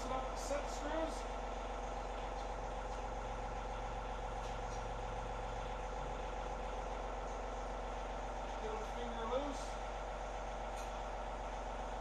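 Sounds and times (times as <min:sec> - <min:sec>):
tractor engine idling: 0:00.0 - 0:12.0.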